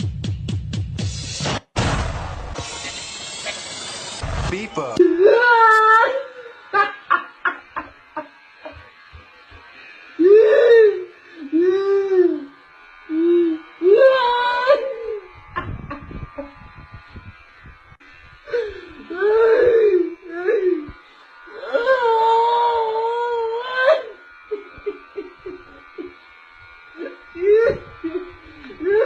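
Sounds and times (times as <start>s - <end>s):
wailing sobbing vocal cries: 5.0s - 8.9s, 10.1s - 15.7s, 18.5s - 26.2s, 27.0s - 29.0s.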